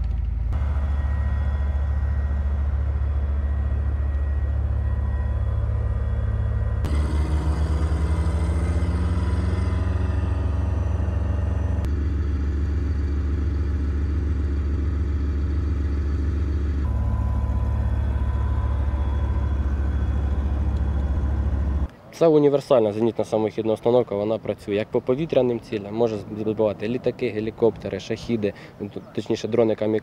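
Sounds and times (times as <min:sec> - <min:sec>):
diesel engine idling: 0:00.2 - 0:21.9.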